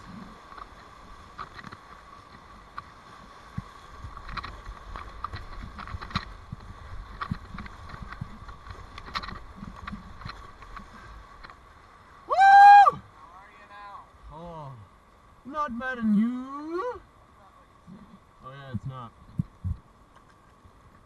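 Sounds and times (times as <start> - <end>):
paddle splashes and knocks: 0.0 - 11.8
rushing whitewater: 0.0 - 19.3
waves hitting boat: 0.0 - 21.0.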